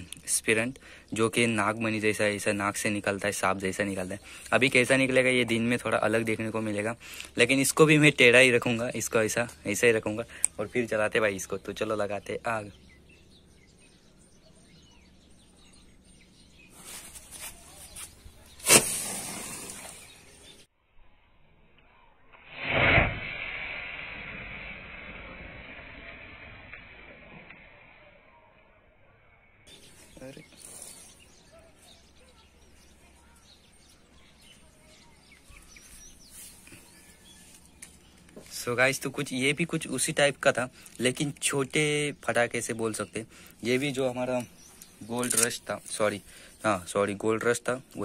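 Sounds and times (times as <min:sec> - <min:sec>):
faint bird chirps: 0:03.7 - 0:22.5, 0:26.1 - 0:48.0
firework bang: 0:18.6 - 0:20.0, 0:22.5 - 0:27.5
firework fuse sputtering: 0:18.6 - 0:20.2, 0:22.3 - 0:27.8
firework hissing and crackling: 0:18.6 - 0:20.2, 0:22.4 - 0:27.5.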